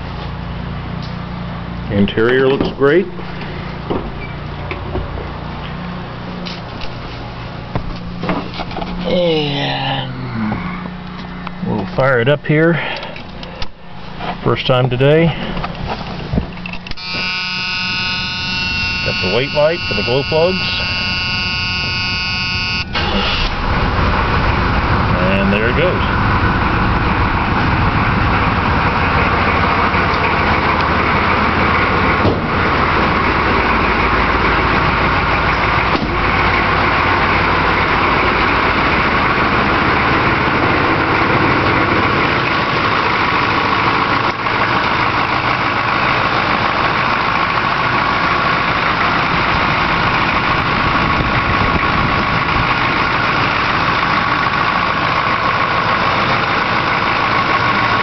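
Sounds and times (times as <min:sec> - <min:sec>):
diesel engine idling: 0:00.0 - 0:58.0.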